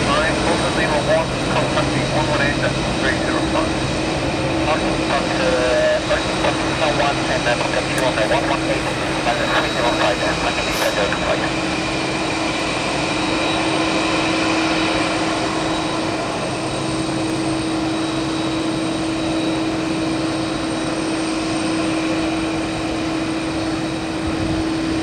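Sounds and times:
jet engines running: 0.0 - 25.0.

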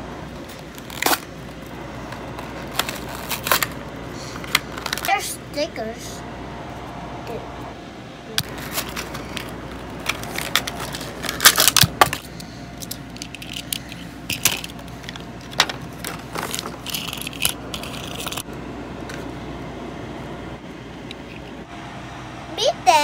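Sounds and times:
plastic wrapping crinkling: 0.5 - 3.8, 8.4 - 18.4.

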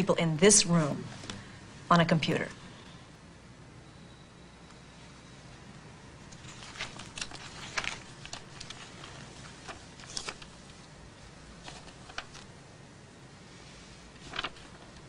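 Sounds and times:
paper rustling: 6.3 - 10.9, 11.6 - 12.5, 14.0 - 15.0.

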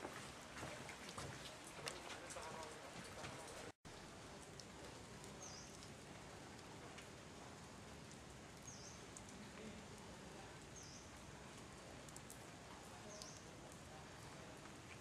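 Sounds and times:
light rain hissing: 0.0 - 15.0
small bird chirping: 5.4 - 5.9, 8.6 - 9.0.

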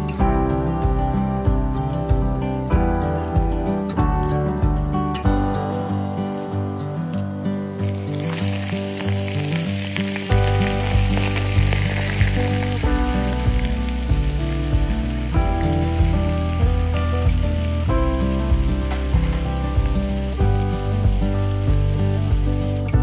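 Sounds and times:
background music with steady beat: 0.0 - 8.1, 10.3 - 23.0
hot oil sizzling: 7.8 - 23.0.

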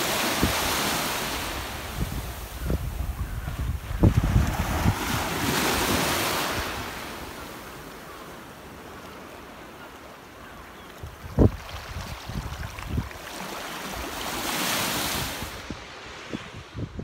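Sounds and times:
small waves washing on beach: 0.0 - 16.8
wind buffeting microphone: 0.3 - 7.2, 11.0 - 13.2, 15.0 - 17.0.

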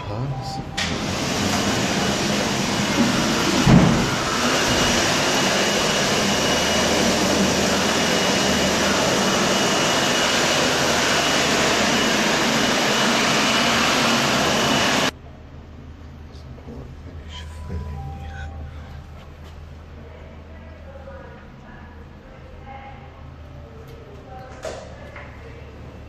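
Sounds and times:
toilet flushing: 0.8 - 15.1
faint high whine: 17.1 - 20.2.

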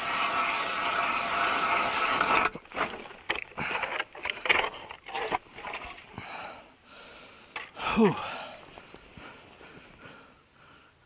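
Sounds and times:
auger scraping and knocking: 0.0 - 6.1
ice auger grinding through ice: 0.0 - 6.1.

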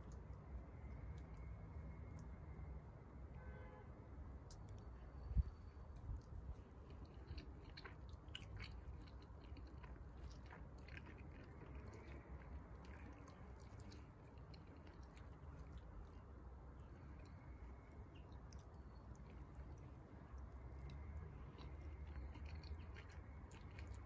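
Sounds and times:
faint chewing: 0.0 - 2.4, 4.4 - 24.0.

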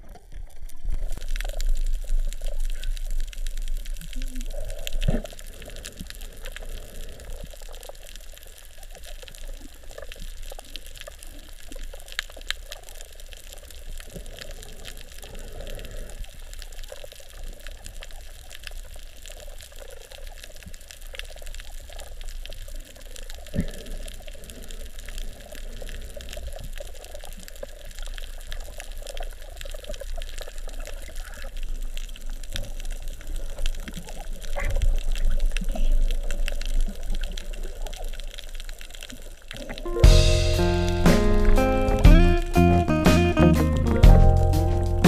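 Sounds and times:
underwater hiss with crackling: 0.0 - 41.9
low rumbles of moving water: 0.0 - 42.5
music: 39.9 - 45.0.

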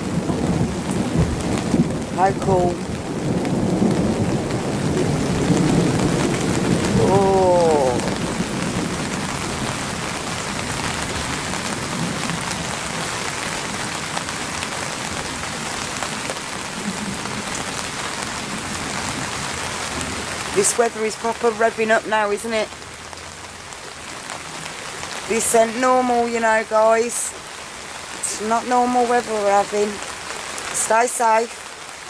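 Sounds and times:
low thunder rumble: 0.0 - 13.9, 15.2 - 20.3
heavy rain pouring: 0.0 - 32.0
falling voice-like sound: 7.0 - 8.2.

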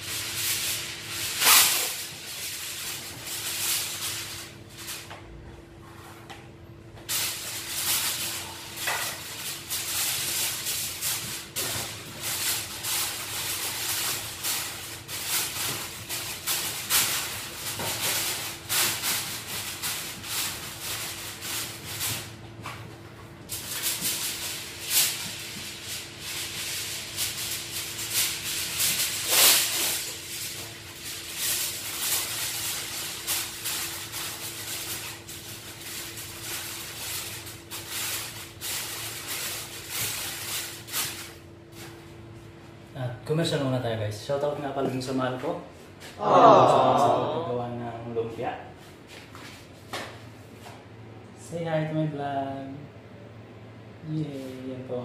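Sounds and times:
aluminium foil crinkling: 0.0 - 5.1, 7.0 - 22.7, 23.4 - 42.1
faint hum: 45.6 - 49.2.

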